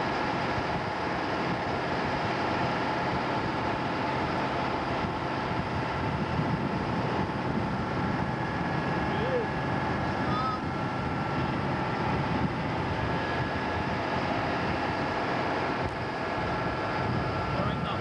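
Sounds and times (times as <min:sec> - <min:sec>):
boat diesel engines droning: 0:00.0 - 0:18.0.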